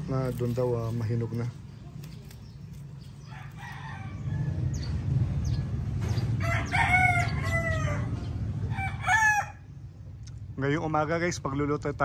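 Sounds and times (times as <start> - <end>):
rooster crowing: 3.3 - 4.8, 6.4 - 9.7.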